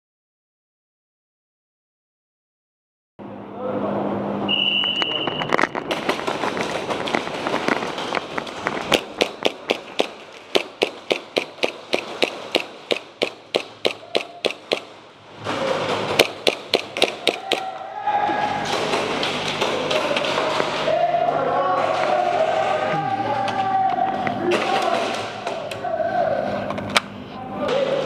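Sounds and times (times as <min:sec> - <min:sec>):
steady background din: 0:03.2 - 0:28.0
airsoft gun shots: 0:08.9 - 0:15.0, 0:16.1 - 0:17.8.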